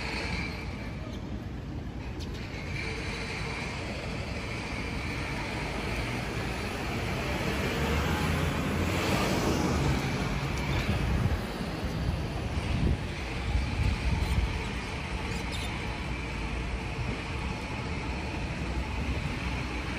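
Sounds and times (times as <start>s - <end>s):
city street traffic: 0.0s - 19.9s
vehicle passing: 5.5s - 13.0s.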